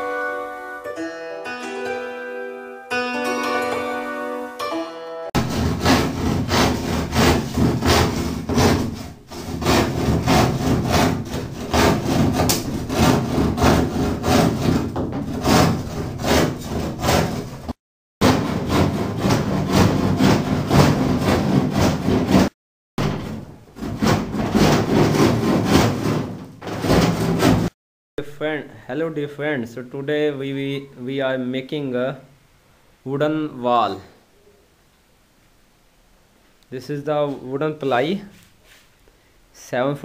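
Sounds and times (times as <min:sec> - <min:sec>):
hand saw cutting plywood: 0:05.4 - 0:27.8.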